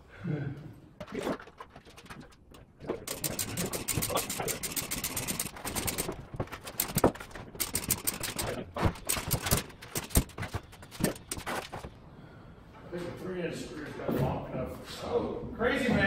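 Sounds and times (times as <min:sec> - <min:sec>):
hoisting gear clicking: 0:02.5 - 0:11.9.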